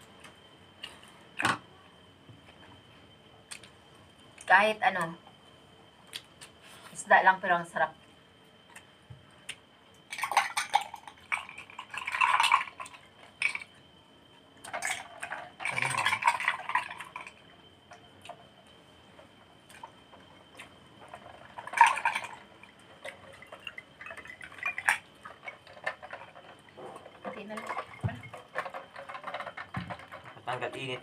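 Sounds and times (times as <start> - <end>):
drink pouring into a glass: 10.1 - 13.7, 14.7 - 17.4, 21.1 - 30.2.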